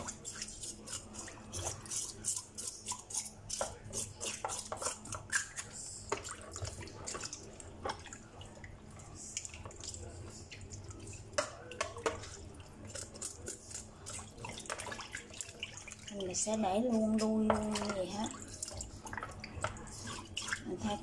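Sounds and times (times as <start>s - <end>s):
water splashing and dripping: 6.1s - 12.7s, 13.9s - 16.6s.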